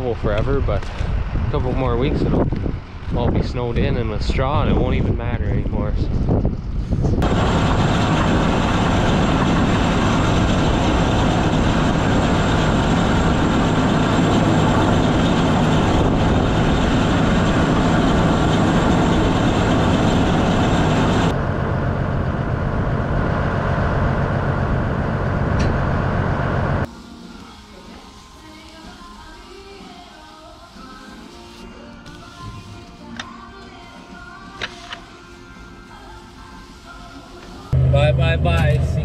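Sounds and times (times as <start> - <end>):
atv engine running: 6.4 - 26.8
manure spreader beaters: 7.2 - 21.3.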